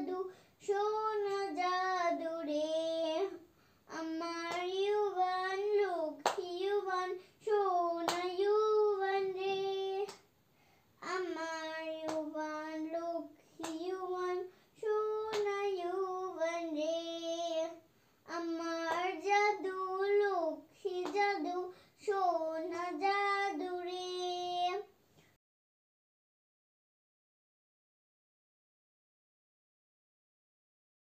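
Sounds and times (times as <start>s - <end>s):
child singing unaccompanied: 0.0s - 10.3s, 11.0s - 25.0s.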